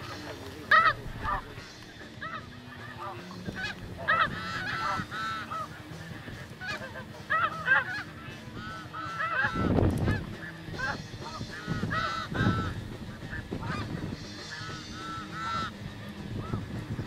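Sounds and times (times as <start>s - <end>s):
geese honking: 0.0s - 17.0s
wind buffeting microphone: 9.4s - 17.0s.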